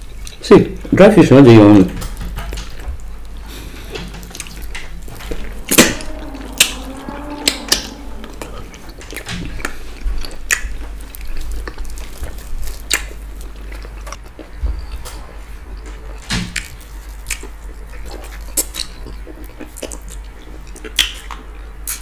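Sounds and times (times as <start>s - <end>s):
wet mouth clicks and smacks: 16.5s - 22.0s.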